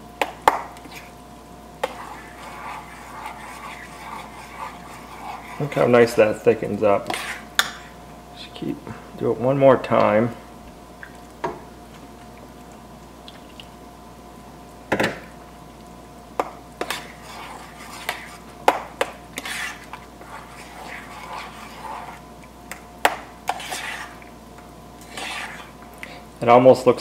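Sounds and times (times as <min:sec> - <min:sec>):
faint steady hum: 0:00.0 - 0:27.0
utensil scraping a saucepan: 0:01.8 - 0:08.0, 0:16.8 - 0:22.3, 0:23.4 - 0:24.2, 0:25.0 - 0:26.2.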